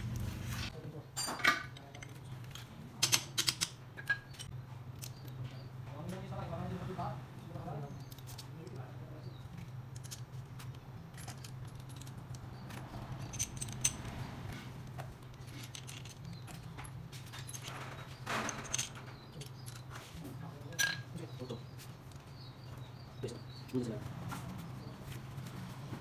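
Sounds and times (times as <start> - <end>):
metallic clinks of engine parts: 8.0 - 24.0.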